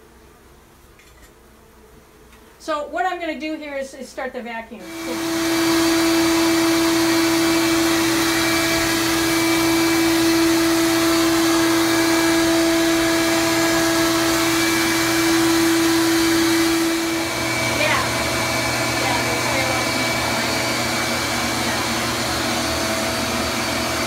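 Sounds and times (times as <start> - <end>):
vacuum motor whining hum: 4.8 - 24.0.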